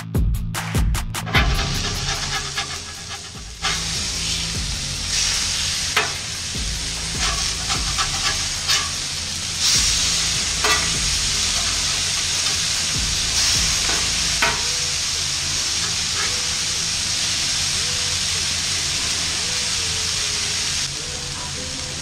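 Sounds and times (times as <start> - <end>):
metal spatula scraping plate: 1.3 - 4.0, 7.2 - 9.2, 10.2 - 13.0
burger patties sizzling on griddle: 1.3 - 22.0.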